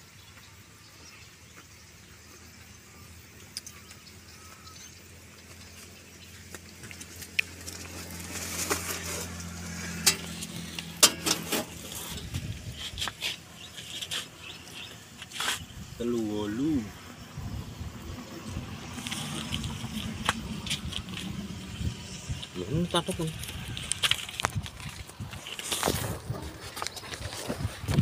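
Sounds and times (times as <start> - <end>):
footsteps: 18.9 - 21.5, 22.4 - 28.0.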